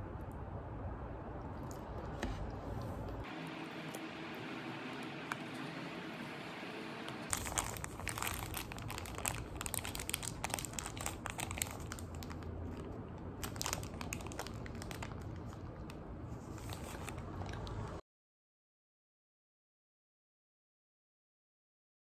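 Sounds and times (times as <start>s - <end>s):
low steady hum: 0.0s - 18.0s
paper wrapper crinkling: 7.3s - 17.9s.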